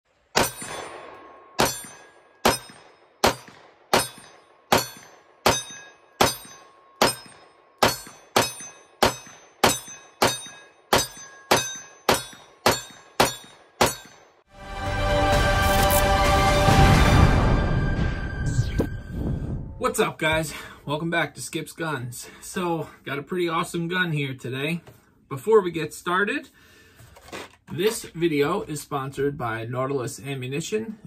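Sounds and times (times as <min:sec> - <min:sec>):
pistol shots with ringing: 0:00.3 - 0:14.2.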